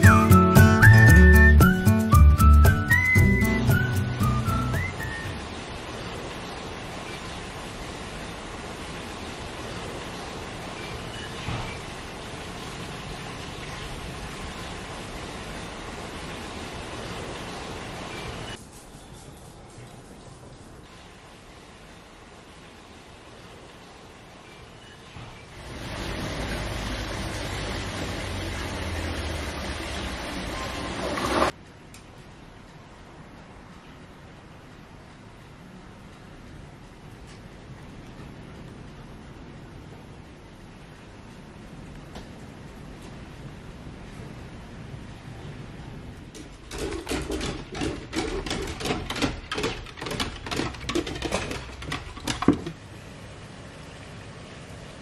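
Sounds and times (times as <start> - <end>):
dog paws on wooden stairs: 46.4 - 52.8.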